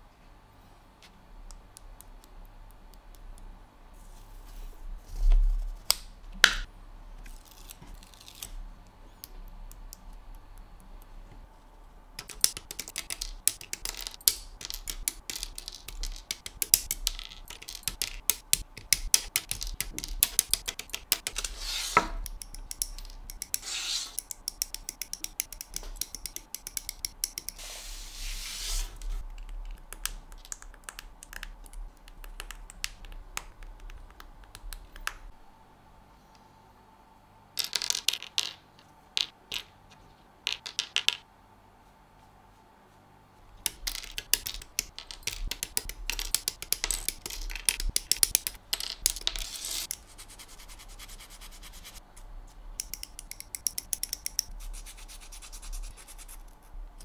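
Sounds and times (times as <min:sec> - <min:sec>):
short scraping strokes: 0:23.6 - 0:24.2.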